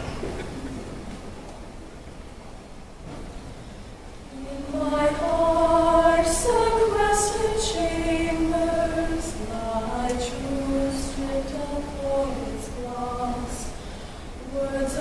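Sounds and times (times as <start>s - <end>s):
women's choir singing: 4.3s - 15.0s.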